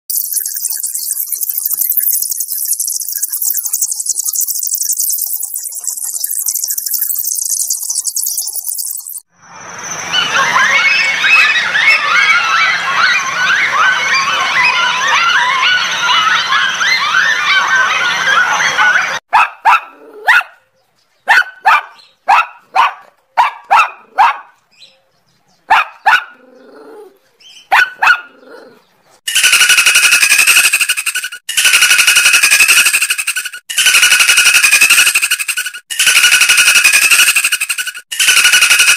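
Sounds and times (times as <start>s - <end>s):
insect chirring: 0.1s - 9.2s
shrill chattering calls: 0.1s - 19.0s, 29.3s - 38.9s
animal barking: 19.3s - 20.6s, 21.3s - 24.6s, 25.7s - 28.8s.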